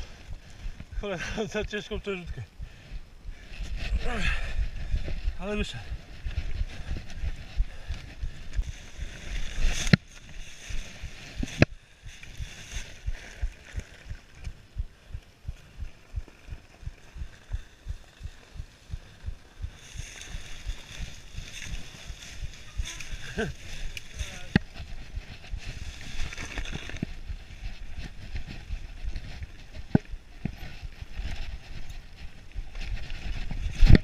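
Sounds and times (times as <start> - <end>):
bike tyre noise: 0.0 - 34.0
wind noise: 0.0 - 34.0
low thumping: 11.0 - 25.8.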